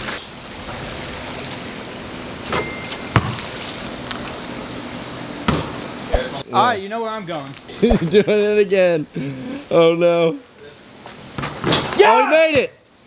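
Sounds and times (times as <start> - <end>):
basketball bouncing: 3.1 - 3.5, 5.4 - 5.8.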